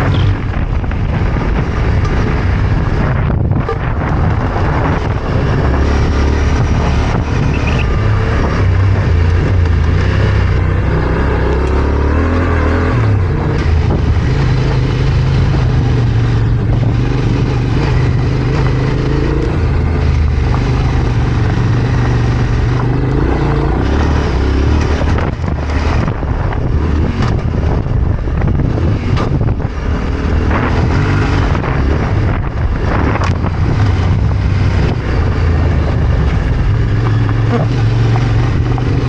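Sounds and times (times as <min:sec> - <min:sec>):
motorcycle engine running: 0:00.0 - 0:39.0
wind noise on microphone: 0:00.0 - 0:39.0.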